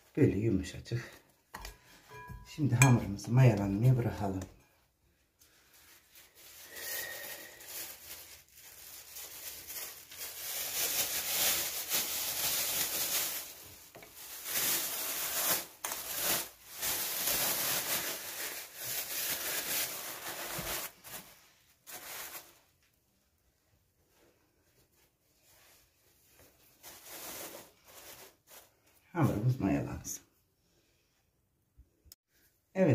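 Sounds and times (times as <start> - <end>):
plastic bag crinkling: 5.4 - 22.9, 25.6 - 28.8.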